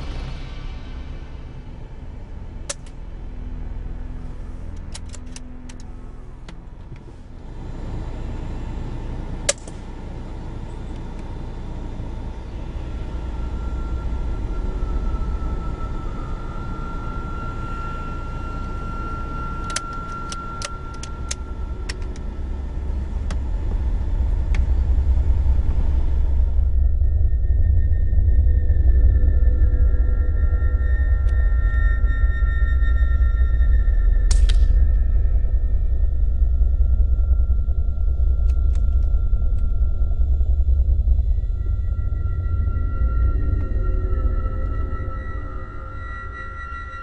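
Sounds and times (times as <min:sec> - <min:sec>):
vehicle engine running: 0:19.8 - 0:27.0.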